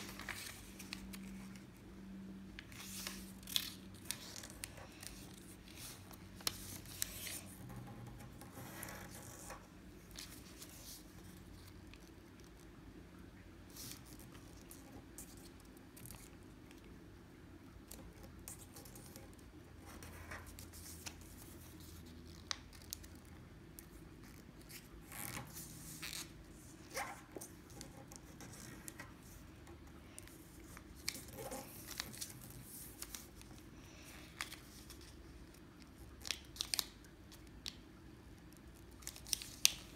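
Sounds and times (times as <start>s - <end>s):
paper rustling and crinkling: 0.0s - 1.8s, 2.6s - 12.6s, 23.9s - 37.8s, 38.7s - 39.9s
faint low hum: 0.0s - 39.9s.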